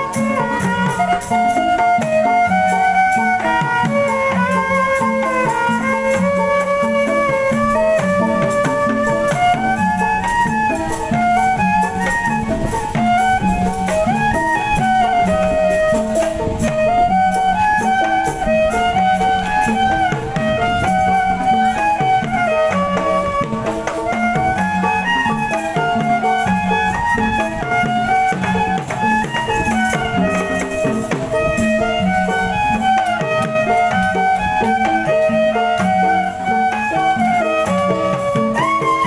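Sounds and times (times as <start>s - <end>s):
traditional music with beat: 0.0s - 39.0s.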